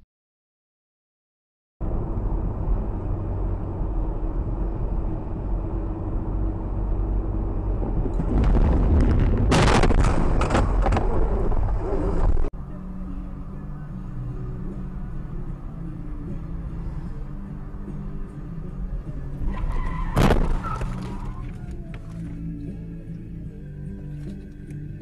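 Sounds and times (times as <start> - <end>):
road noise: 1.8 - 25.0
vehicle engine rumble: 1.8 - 25.0
vehicle collision bangs and crunches: 7.8 - 12.4, 19.6 - 21.4.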